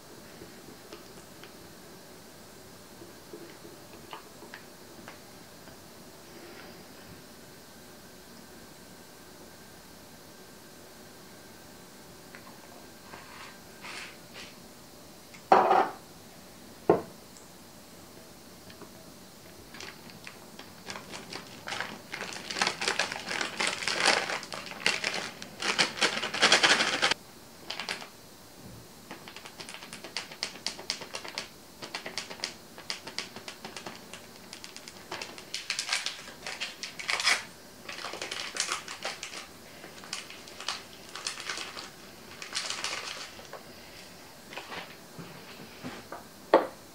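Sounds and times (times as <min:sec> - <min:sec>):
rapid clicking and scraping of flour: 0:29.1 - 0:37.0.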